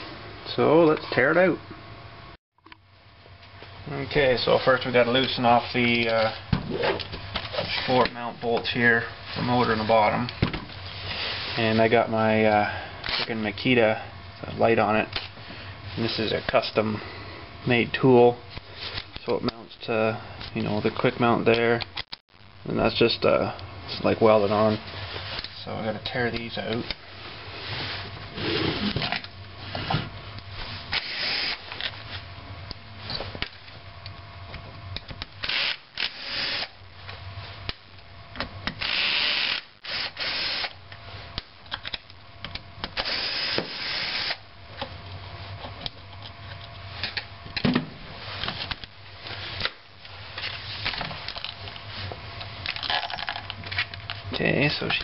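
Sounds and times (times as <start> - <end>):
cordless power driver running: 30.9 - 31.9, 35.2 - 36.8, 38.7 - 40.8, 42.8 - 44.4
clicks and handling noise: 44.8 - 47.7.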